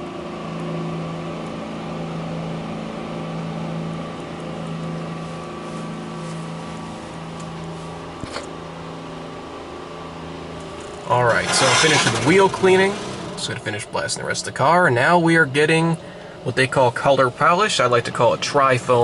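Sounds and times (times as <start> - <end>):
pump hum: 16.0 - 16.6.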